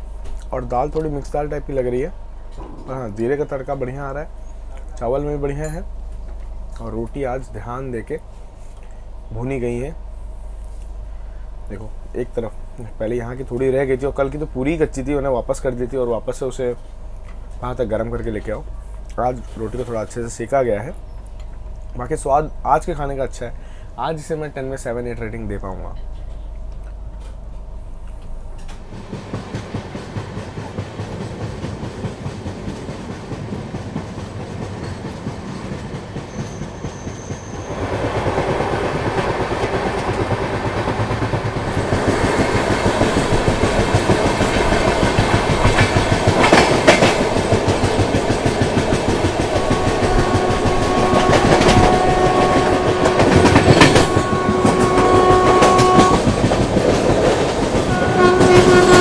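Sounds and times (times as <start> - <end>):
train wheels clattering on rails: 28.6 - 59.0
locomotive horn long note: 49.5 - 56.6, 57.8 - 59.0.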